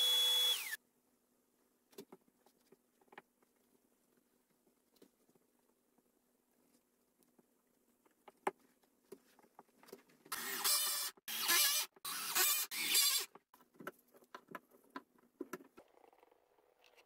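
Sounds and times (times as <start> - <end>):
cordless drill driving screws: 0.0 - 0.8, 10.3 - 13.3
handling taps and knocks: 13.3 - 15.9.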